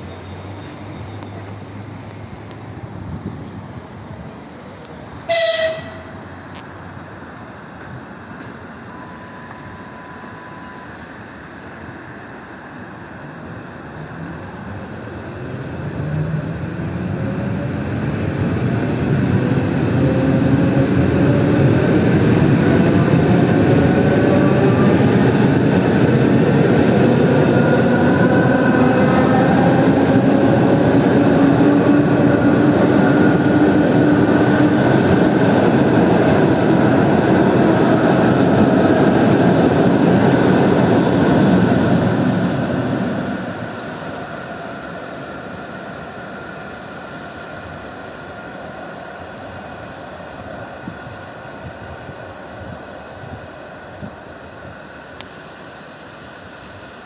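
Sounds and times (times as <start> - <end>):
train rolling rumble: 0.0 - 57.0
traction motor whine rising: 13.9 - 43.8.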